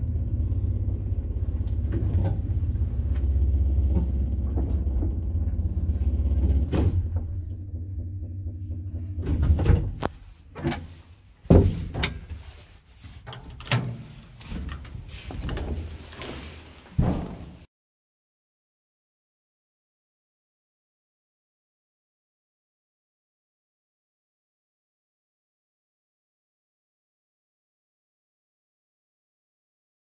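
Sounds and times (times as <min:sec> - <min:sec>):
lift humming and rumbling: 0:00.0 - 0:17.7
lift doors banging: 0:03.7 - 0:12.3.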